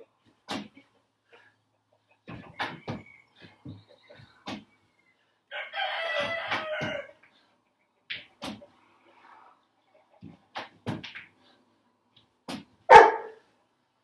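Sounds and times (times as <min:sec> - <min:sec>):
rooster crowing: 0:05.5 - 0:07.2.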